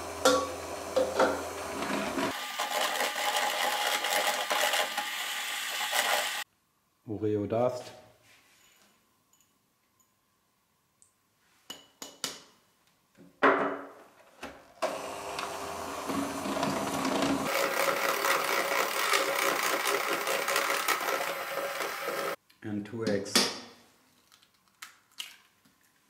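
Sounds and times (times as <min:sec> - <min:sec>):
electric hand mixer whisking batter: 0:00.0 - 0:06.4, 0:14.8 - 0:22.4.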